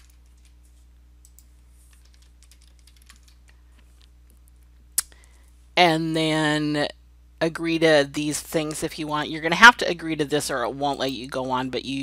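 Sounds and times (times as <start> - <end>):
keyboard typing: 0.0 - 3.6
low electrical hum: 0.0 - 12.0.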